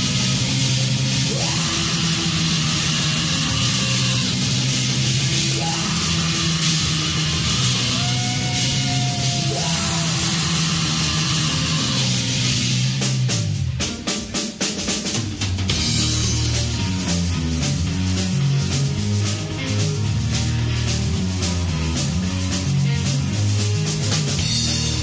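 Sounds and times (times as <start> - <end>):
bass guitar: 0.0 - 25.0
drum kit: 0.0 - 25.0
electric guitar: 0.0 - 25.0
shouted vocals: 1.2 - 12.6.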